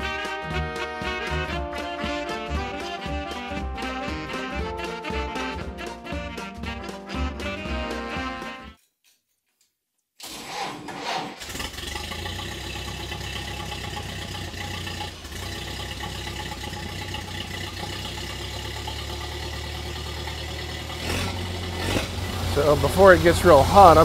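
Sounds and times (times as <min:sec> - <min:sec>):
car engine starting and idling: 0:10.2 - 0:24.0.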